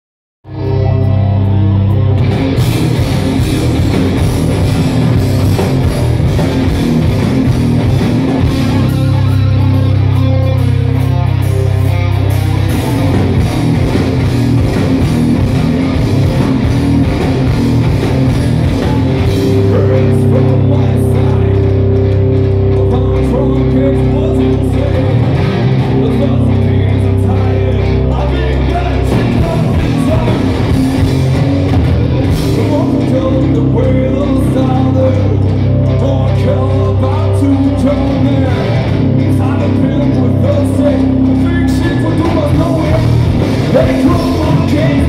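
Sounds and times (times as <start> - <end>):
live rock band playing: 0.4 - 45.0.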